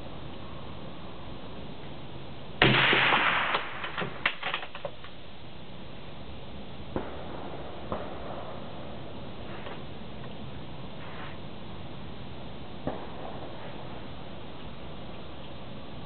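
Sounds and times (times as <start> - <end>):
suppressed rifle shot: 2.6 - 4.6.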